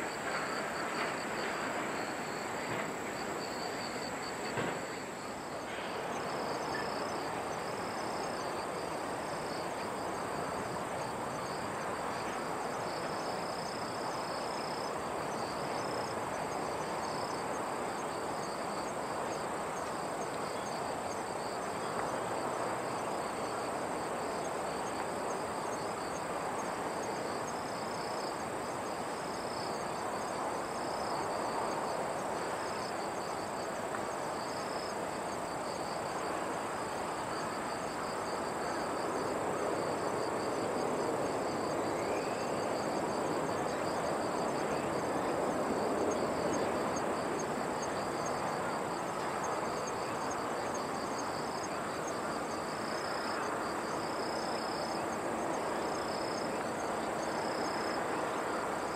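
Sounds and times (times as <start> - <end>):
insects trilling: 0.0 - 58.9
outdoor background rush: 0.0 - 58.9
pulsing insect chirp: 0.0 - 58.9.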